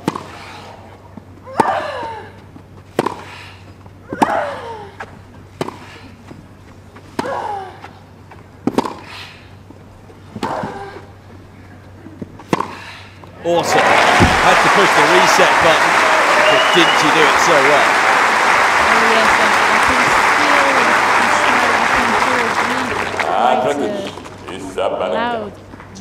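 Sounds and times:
racquets striking tennis ball: 0.0 - 0.4, 2.7 - 3.4, 5.4 - 6.0, 7.0 - 9.2, 12.2 - 12.8.

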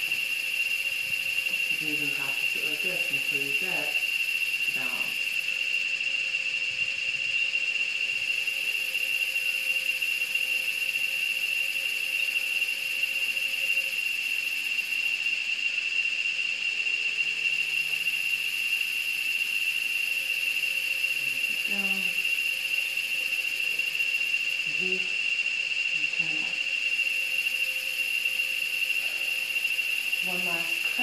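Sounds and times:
steady high-pitched whine: 0.0 - 31.0.

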